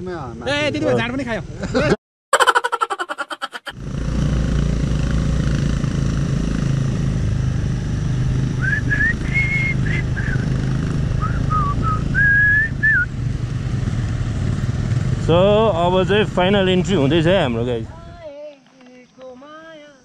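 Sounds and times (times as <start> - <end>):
motorcycle engine running: 3.7 - 18.2
person whistling a tune: 8.6 - 10.4, 11.2 - 13.1.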